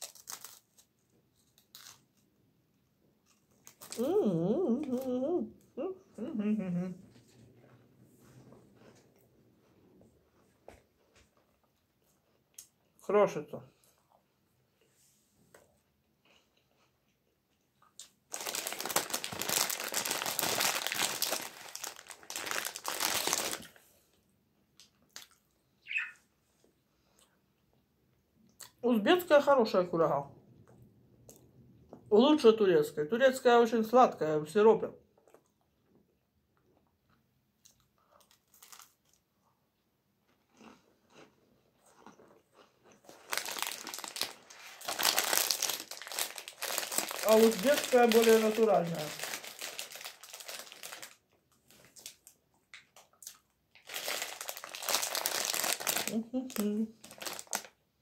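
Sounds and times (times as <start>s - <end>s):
plastic bag crinkling: 0.0s - 2.2s, 3.6s - 4.1s, 18.3s - 23.9s, 38.2s - 39.2s, 43.0s - 52.4s, 53.8s - 57.8s.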